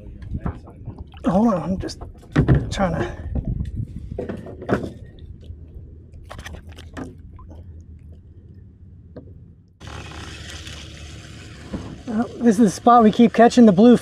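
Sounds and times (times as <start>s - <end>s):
wind and water hiss: 9.8s - 14.0s.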